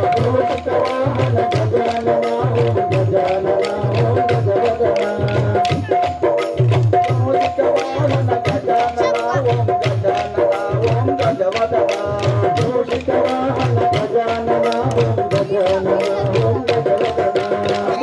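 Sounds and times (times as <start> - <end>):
drum beating: 0.0 - 18.0
folk melody: 7.1 - 9.7.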